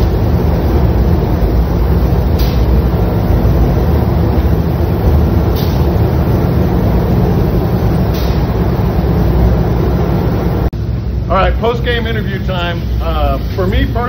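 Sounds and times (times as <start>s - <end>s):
spray gun rumble and hiss: 0.0s - 14.0s.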